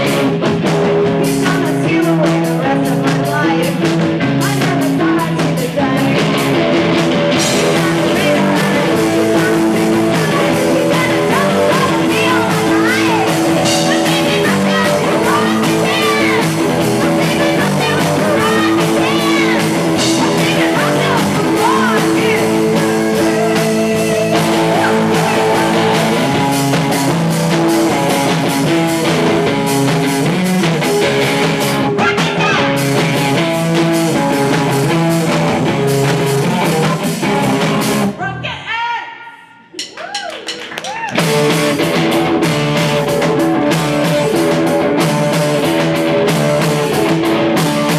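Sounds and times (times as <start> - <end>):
drum kit: 0.0 - 38.2, 39.6 - 47.9
electric guitars: 0.0 - 38.2, 40.5 - 47.9
person singing: 1.0 - 6.5, 7.5 - 29.4.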